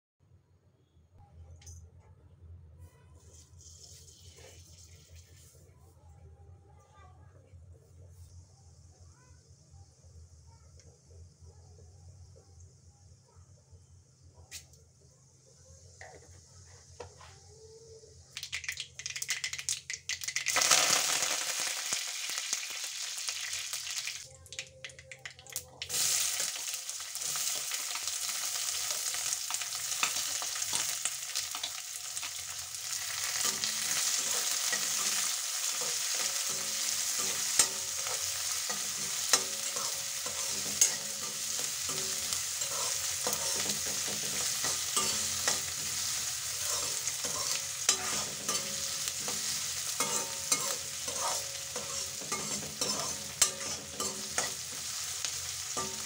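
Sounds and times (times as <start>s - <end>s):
metal spatula scraping a pan: 3.2s - 5.6s, 33.2s - 56.0s
onion sizzling in hot oil: 3.2s - 5.6s, 18.3s - 56.0s.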